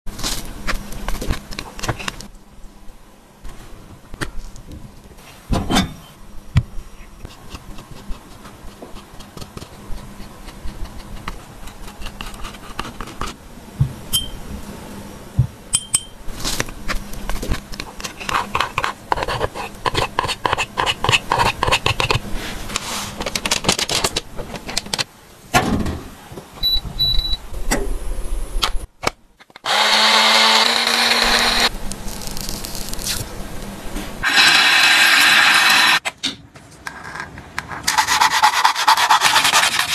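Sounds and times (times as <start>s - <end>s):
metal spatula scraping powder: 17.3s - 23.2s, 37.8s - 39.9s.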